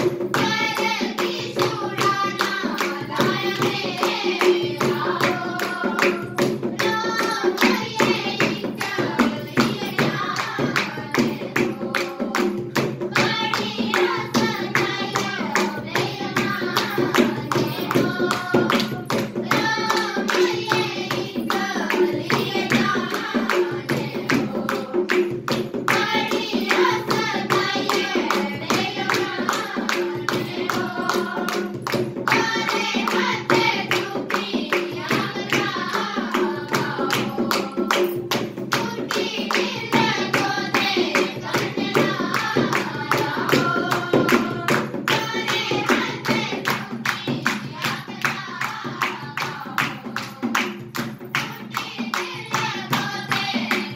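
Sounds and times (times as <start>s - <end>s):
barrel drum rhythm: 0.0s - 53.9s
girls singing together: 0.0s - 53.9s
hand clapping: 0.0s - 53.9s.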